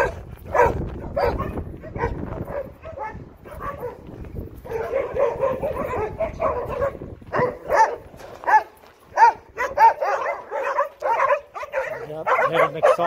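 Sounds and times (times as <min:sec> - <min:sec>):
dogs barking: 0:00.0 - 0:13.0.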